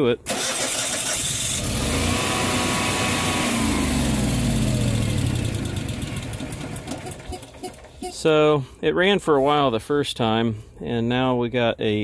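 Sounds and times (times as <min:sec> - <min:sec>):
generator engine running: 0:00.3 - 0:08.2.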